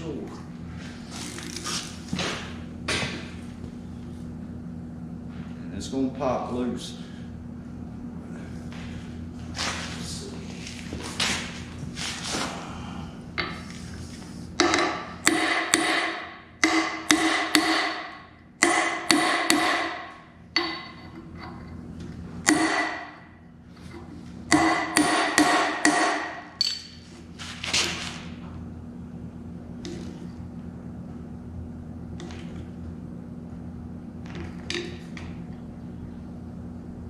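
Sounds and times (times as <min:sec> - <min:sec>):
steady low hum: 0:00.0 - 0:37.0
hammer striking steel: 0:14.6 - 0:21.1, 0:22.5 - 0:23.2, 0:24.5 - 0:27.0.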